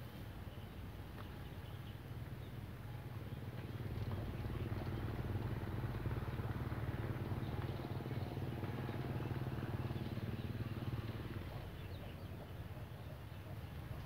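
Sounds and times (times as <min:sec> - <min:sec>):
motor engine throbbing: 0:03.4 - 0:12.1.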